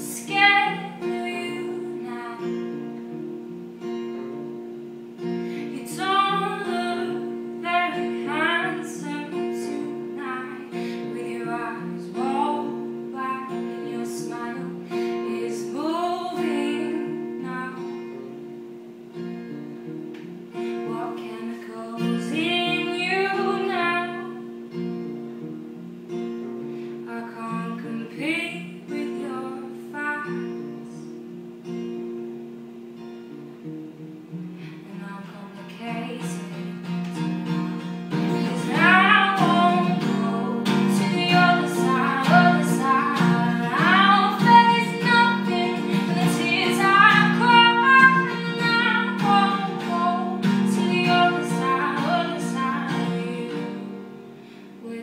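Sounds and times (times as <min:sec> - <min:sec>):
woman singing: 0:00.0 - 0:18.8, 0:20.2 - 0:24.8, 0:27.0 - 0:31.4, 0:34.6 - 0:55.0
acoustic guitar strumming: 0:00.0 - 0:55.0.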